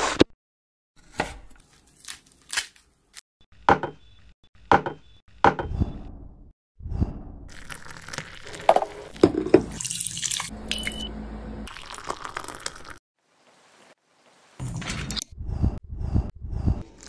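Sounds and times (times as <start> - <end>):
objects knocking on tabletop: 8.7 - 9.7.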